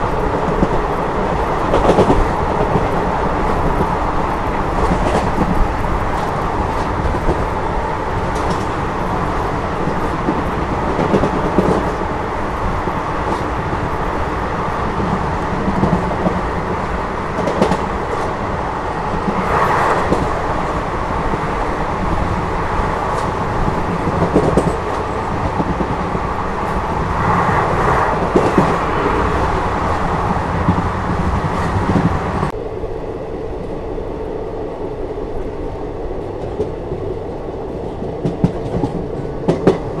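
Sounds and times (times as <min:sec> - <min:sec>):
train clattering: 0:00.0 - 0:32.6, 0:36.2 - 0:40.0
train wheels rumbling on rails: 0:00.0 - 0:40.0.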